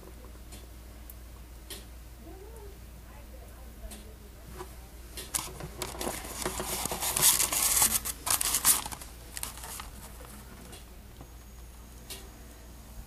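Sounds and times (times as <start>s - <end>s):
dry crackling rustle: 4.6s - 11.3s.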